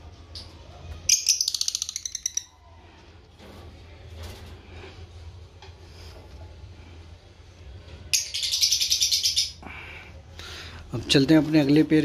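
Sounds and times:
lovebird rattling chatter: 0:01.1 - 0:02.5.

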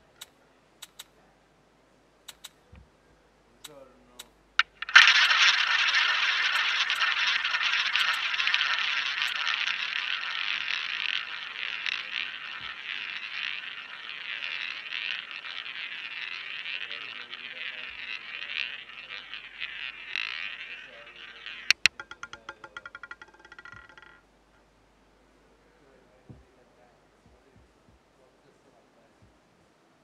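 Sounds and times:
ball clicking and rattling on frets: 0:03.6 - 0:24.3
roulette ball whirring around wheel: 0:04.6 - 0:24.2, 0:25.8 - 0:28.1.

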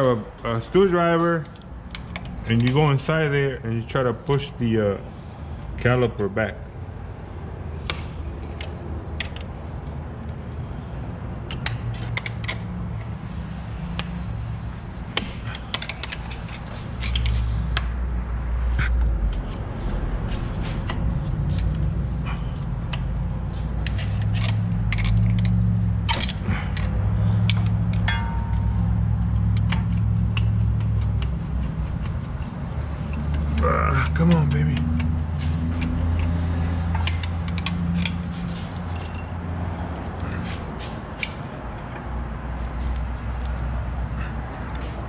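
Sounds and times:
low hum: 0:12.6 - 0:34.0
screwdriver scraping metal: 0:15.0 - 0:17.9, 0:21.3 - 0:39.4
metal clicks and clinks: 0:23.8 - 0:31.4, 0:33.0 - 0:41.9.

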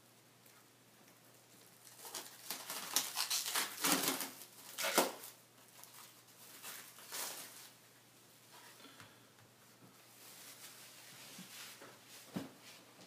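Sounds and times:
plastic shrink wrap crinkling: 0:01.6 - 0:07.8.

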